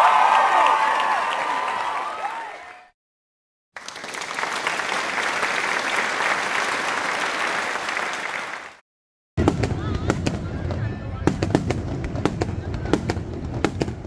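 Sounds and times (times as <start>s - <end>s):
crowd applauding: 0.0s - 2.9s, 3.8s - 8.8s.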